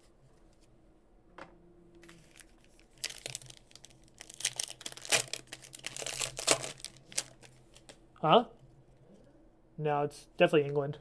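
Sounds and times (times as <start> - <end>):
foil wrapper tearing and crinkling: 2.0 - 7.9.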